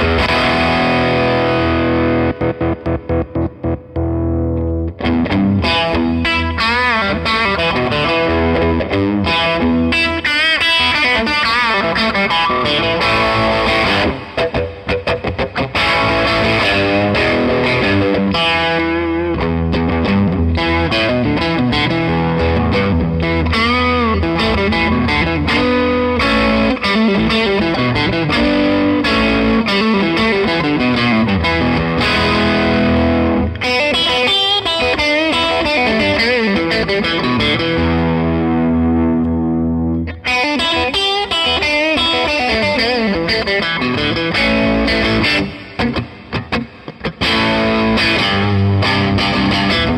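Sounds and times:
overdriven electric guitar: 0.0 - 49.9.

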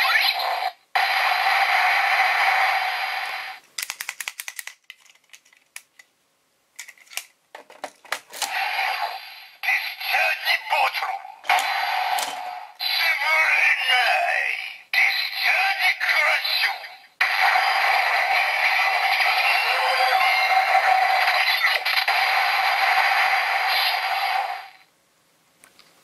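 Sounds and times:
clicks of toy handling: 3.6 - 6.1, 6.8 - 8.5
toy electronic sound effects and music: 17.2 - 21.9.

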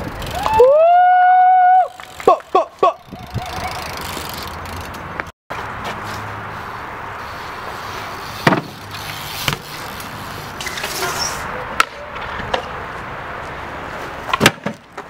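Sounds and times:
bike rolling on concrete: 0.0 - 15.0
bike knocking on ground: 8.4 - 10.0.

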